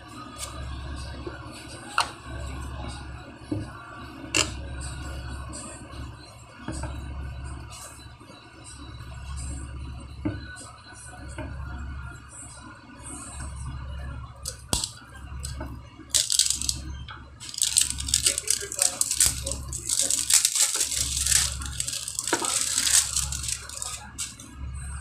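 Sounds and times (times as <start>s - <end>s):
plastic wrapping crinkling and tearing: 14.5s - 15.6s, 16.2s - 16.8s, 17.4s - 24.4s.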